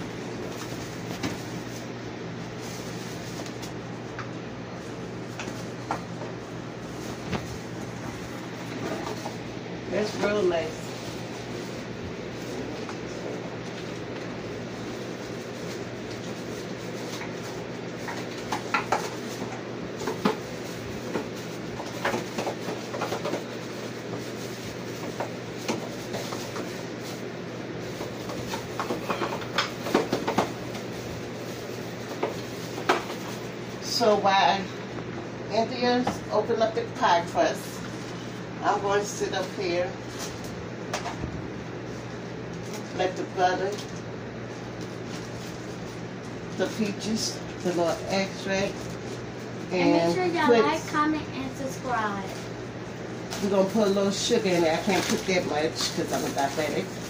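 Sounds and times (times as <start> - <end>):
low room hum: 0.0 - 57.0.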